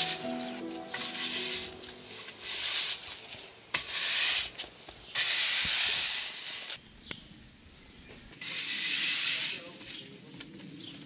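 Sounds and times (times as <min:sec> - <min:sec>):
push broom sweeping on concrete: 0:01.0 - 0:06.8, 0:08.4 - 0:10.2.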